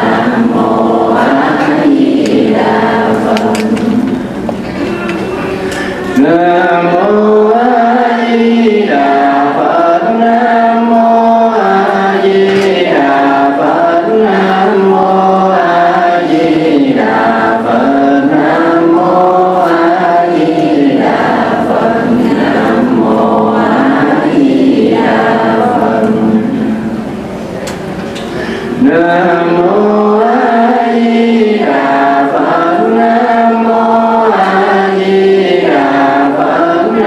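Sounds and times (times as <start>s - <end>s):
group chanting in unison: 0.0s - 4.4s, 6.2s - 27.0s, 28.7s - 37.0s.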